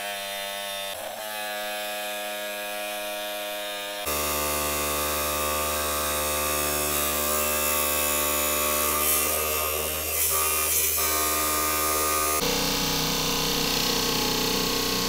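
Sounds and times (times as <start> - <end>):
electric saw motor humming: 0.0 - 15.0
saw blade hissing through stone: 4.0 - 15.0.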